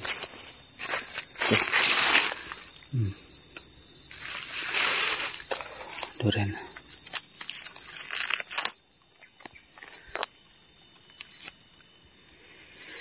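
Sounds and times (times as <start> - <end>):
dry leaves rustling: 0.0 - 2.6, 4.1 - 6.2
insect chorus: 0.0 - 13.0.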